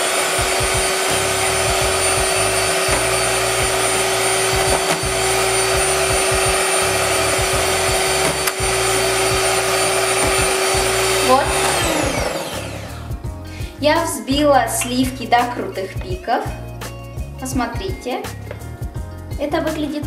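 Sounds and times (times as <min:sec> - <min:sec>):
electric mixer whipping cream: 0:00.0 - 0:13.2.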